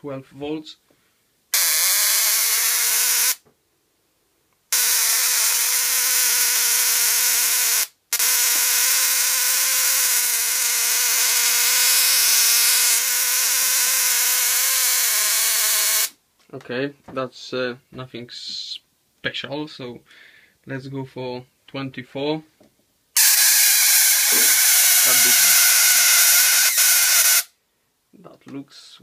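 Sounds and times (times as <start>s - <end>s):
high-voltage sparks buzzing: 1.6s - 3.4s, 4.7s - 16.2s, 23.2s - 27.5s.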